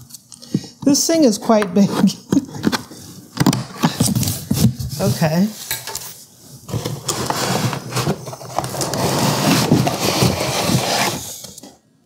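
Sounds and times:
pulp insert scraping cardboard box: 6.7s - 11.6s.

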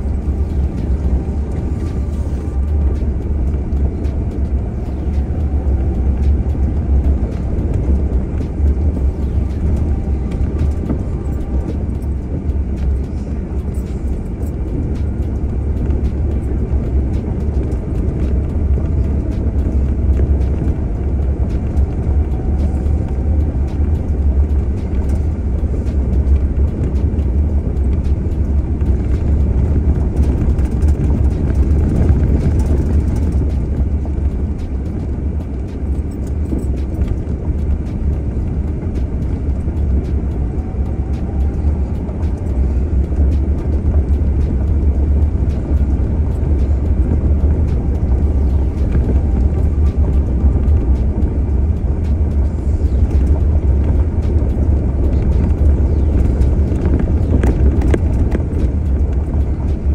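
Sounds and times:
vehicle engine and tyres rumbling: 0.0s - 59.9s.

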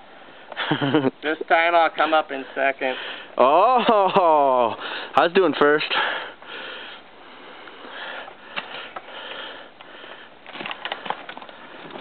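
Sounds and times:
person breathing hard and sniffing: 5.9s - 11.9s.

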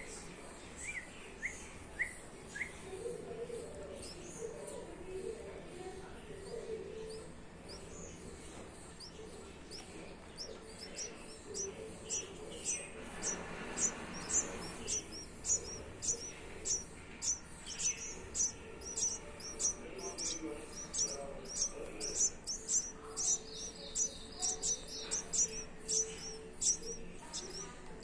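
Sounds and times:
nestlings cheeping: 6.4s - 28.0s.

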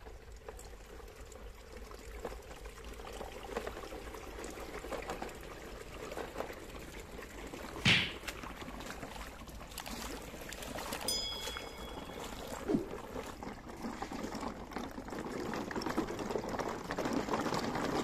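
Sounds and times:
stream water trickling and splashing: 0.0s - 18.0s
short high tone: 11.1s - 12.9s.

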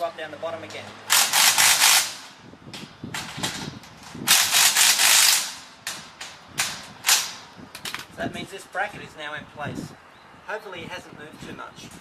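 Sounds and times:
power driver tightening bolts: 3.3s - 8.1s.

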